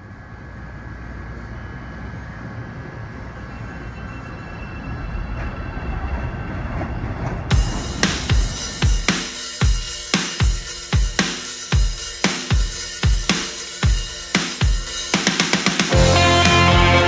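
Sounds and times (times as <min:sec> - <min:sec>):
train rumbling: 0:00.0 - 0:11.2
high whine: 0:00.0 - 0:17.0.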